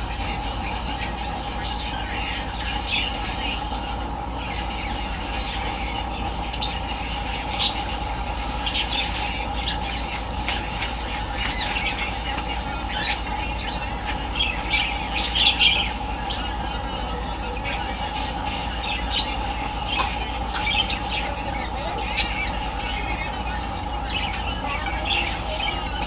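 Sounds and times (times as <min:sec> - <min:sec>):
birds chirping and squawking: 0:00.0 - 0:26.0
steady hum: 0:00.0 - 0:26.0.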